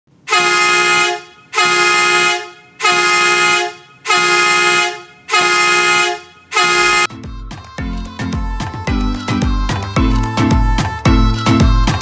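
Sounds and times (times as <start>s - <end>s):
vehicle horn honking: 0.3s - 7.1s.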